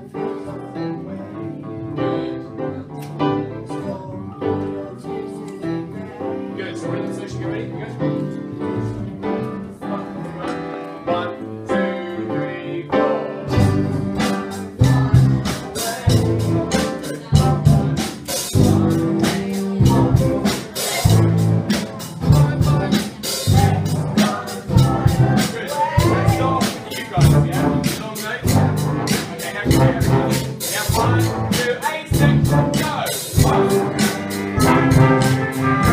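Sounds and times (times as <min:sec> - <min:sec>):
people singing: 0:00.0 - 0:08.0, 0:08.6 - 0:35.9
piano: 0:00.0 - 0:35.9
band with drum kit: 0:12.9 - 0:35.9.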